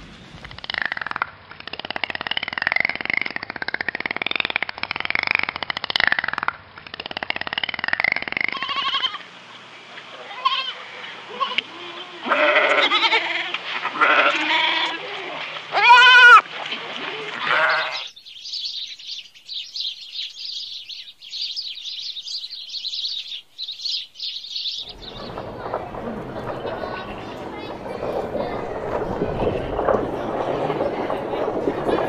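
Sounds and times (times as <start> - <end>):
goat kid bleating: 8.5 - 9.2, 10.2 - 15.0, 15.7 - 16.4, 17.4 - 18.0.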